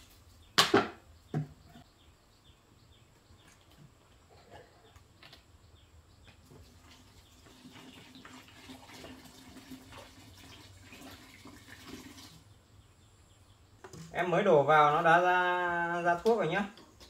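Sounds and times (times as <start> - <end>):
liquid pouring trickle: 6.5 - 12.5.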